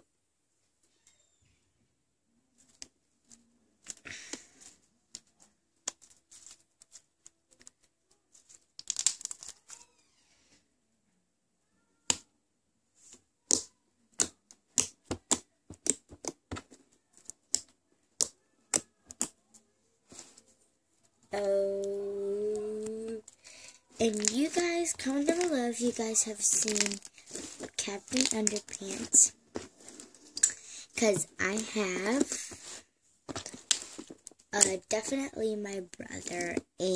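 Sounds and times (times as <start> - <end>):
slime beads crackling and popping: 8.8 - 9.9, 23.4 - 32.8.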